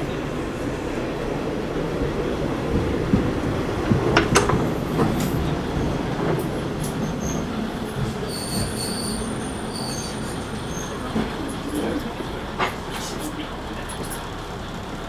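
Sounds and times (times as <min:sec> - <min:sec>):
railcar rumble: 0:00.0 - 0:15.0
high wheel squeal: 0:07.0 - 0:11.9.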